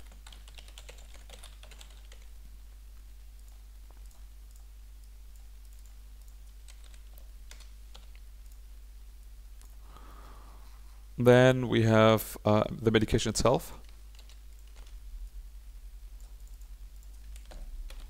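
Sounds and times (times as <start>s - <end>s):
keyboard typing: 0.0s - 2.3s, 3.4s - 8.6s, 13.8s - 15.0s, 16.2s - 18.0s
steady low hum: 0.0s - 18.0s.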